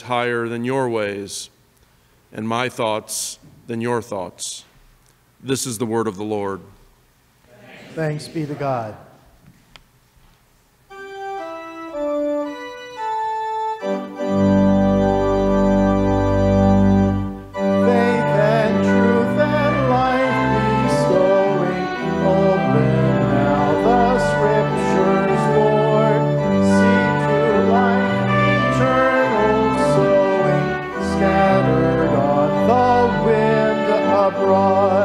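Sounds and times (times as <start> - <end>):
church organ playing: 10.8 - 35.0
voices singing a hymn: 16.7 - 35.0.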